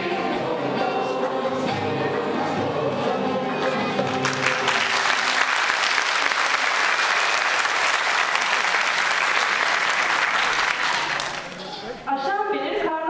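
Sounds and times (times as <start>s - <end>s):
audience applauding: 4.0s - 11.8s.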